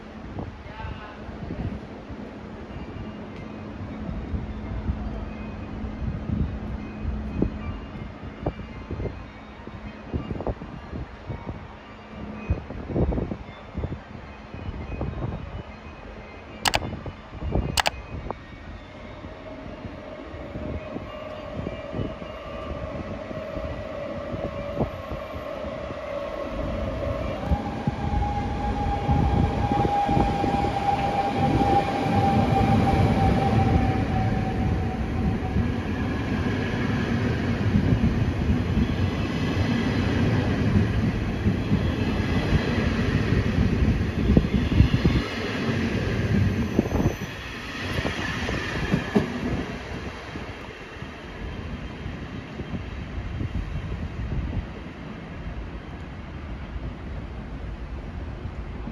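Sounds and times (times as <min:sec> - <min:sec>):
high steady train whine: 0:00.0 - 0:58.9
train wheels rumbling on rails: 0:19.6 - 0:58.9.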